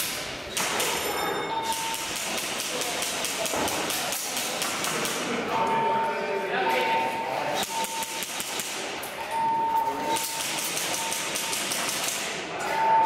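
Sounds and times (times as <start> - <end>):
steady high beep: 1.1 - 2.2, 5.5 - 8.3, 9.2 - 11.7, 12.6 - 13.0
airsoft guns firing in bursts: 7.7 - 8.9, 10.2 - 12.3.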